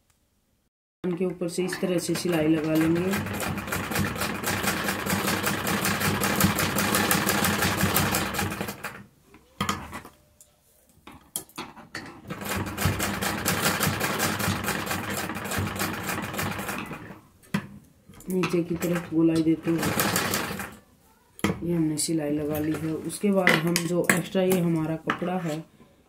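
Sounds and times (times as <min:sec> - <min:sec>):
sewing machine stitching: 0:01.6 - 0:09.0, 0:12.2 - 0:17.2, 0:18.2 - 0:20.8.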